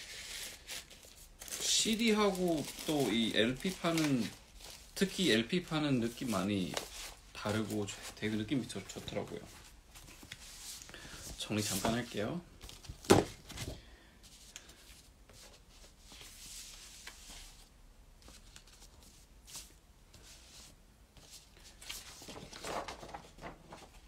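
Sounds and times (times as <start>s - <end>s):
cardboard record sleeves rustling: 0.0s - 24.0s.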